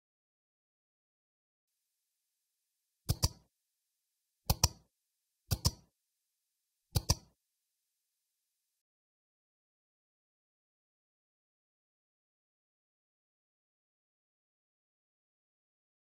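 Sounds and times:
mouse double clicks: 3.1s - 3.4s, 4.5s - 4.8s, 5.5s - 5.9s, 7.0s - 7.3s.

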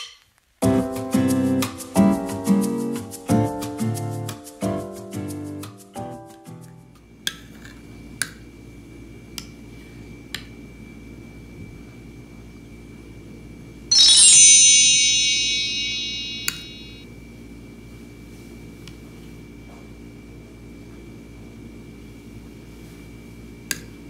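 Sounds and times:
shimmering chime: 13.9s - 17.0s.

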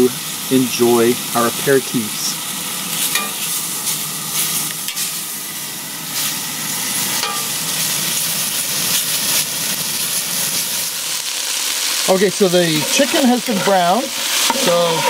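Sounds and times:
chicken sizzling in grease: 0.0s - 15.0s
metal spatula scraping pot: 12.8s - 13.8s, 14.4s - 15.0s.

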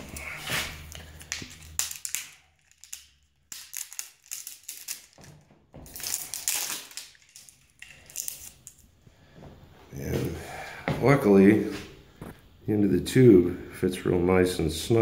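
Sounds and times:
plastic crinkling and clicking: 0.9s - 8.8s.

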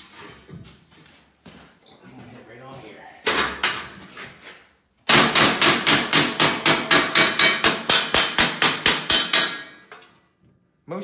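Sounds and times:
hammer striking sheet metal: 5.1s - 10.0s.

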